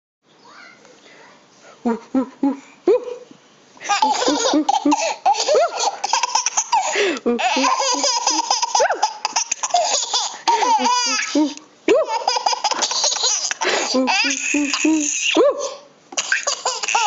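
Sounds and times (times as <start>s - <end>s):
babies laughing: 3.8s - 17.0s.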